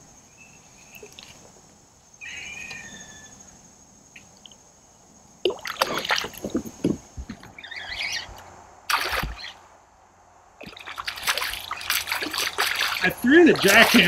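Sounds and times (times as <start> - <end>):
fish splashing in water: 5.5 - 6.7, 8.9 - 9.6, 10.6 - 14.0.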